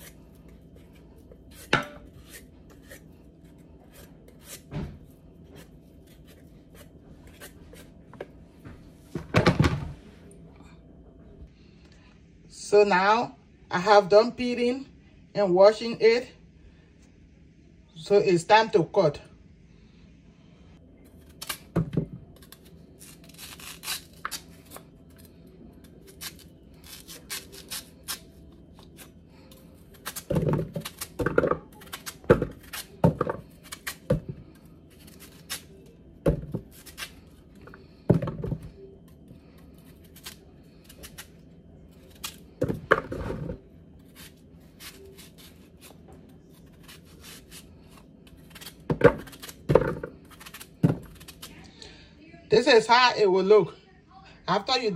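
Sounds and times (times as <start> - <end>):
knife cutting root: 26.0 - 35.8, 42.0 - 42.4, 44.1 - 46.0, 46.6 - 51.6.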